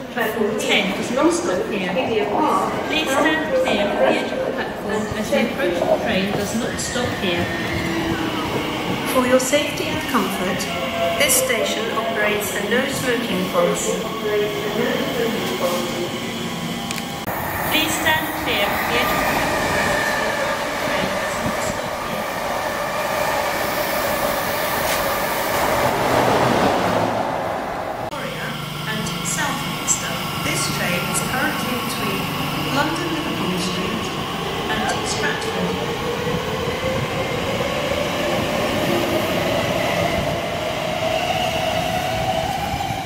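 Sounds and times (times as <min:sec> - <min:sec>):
train wheels on rails: 0:04.6 - 0:27.4.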